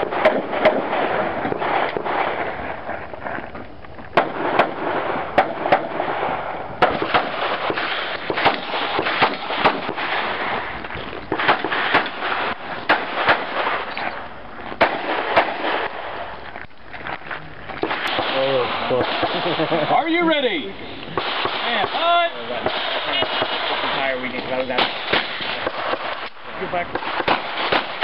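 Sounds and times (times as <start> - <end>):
handgun shots with echo: 26.9 - 28.0.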